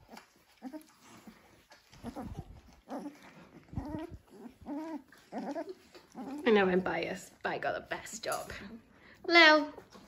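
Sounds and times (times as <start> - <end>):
puppies whimpering: 0.0 - 7.0.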